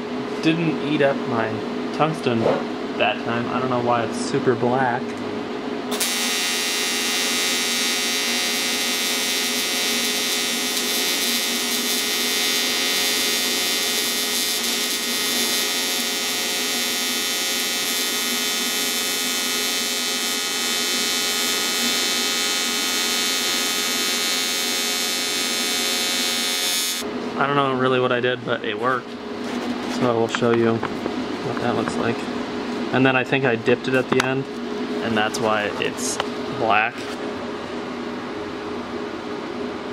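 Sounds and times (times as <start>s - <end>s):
welding arc buzzing: 5.9s - 27.1s.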